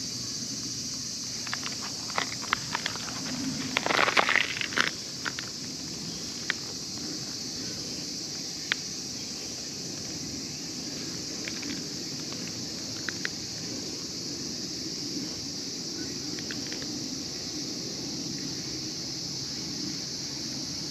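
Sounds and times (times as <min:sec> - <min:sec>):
high-pitched outdoor hiss: 0:00.0 - 0:20.9.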